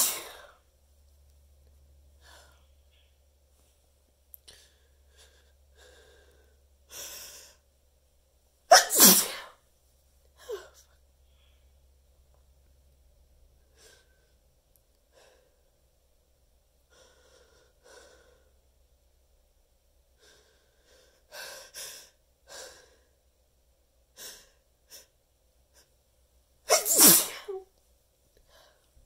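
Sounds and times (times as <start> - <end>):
person sneezing: 0.0 - 0.5, 8.7 - 9.6, 26.7 - 27.7
person inhaling before sneeze: 26.7 - 27.6.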